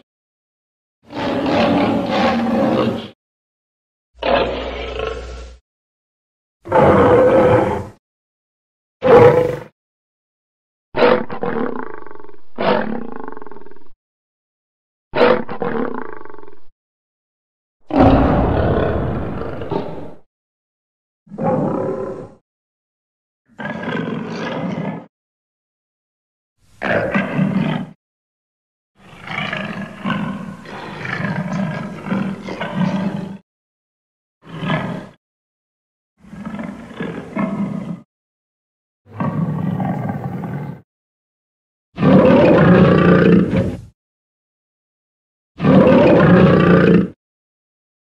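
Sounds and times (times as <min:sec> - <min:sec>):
lion roaring: 0:01.1 - 0:03.2, 0:04.2 - 0:05.4, 0:06.7 - 0:08.0, 0:09.0 - 0:09.7, 0:11.0 - 0:13.8, 0:15.2 - 0:16.6, 0:17.9 - 0:20.3, 0:21.3 - 0:22.4, 0:23.6 - 0:25.1, 0:26.8 - 0:28.0, 0:29.0 - 0:33.4, 0:34.5 - 0:35.2, 0:36.3 - 0:38.0, 0:39.1 - 0:40.8, 0:42.0 - 0:43.9, 0:45.6 - 0:47.2.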